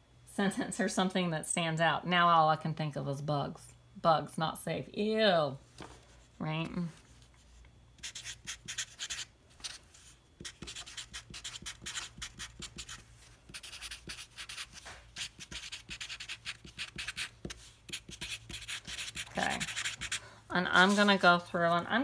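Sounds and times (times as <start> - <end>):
marker writing on paper: 8.0 - 9.3, 10.4 - 20.2.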